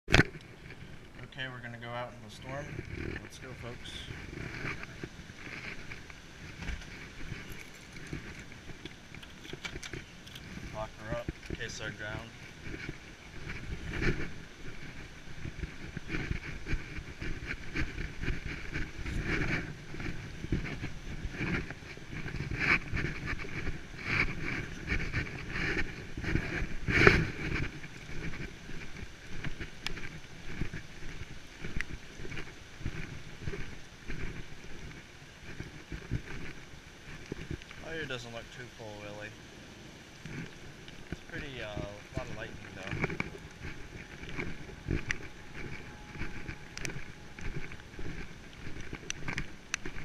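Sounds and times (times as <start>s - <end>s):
footsteps: 0.1s - 39.4s, 40.2s - 50.0s
clothing rubbing on camera: 0.1s - 50.0s
wind noise on microphone: 0.1s - 50.0s
footsteps on wet concrete: 40.1s - 50.0s.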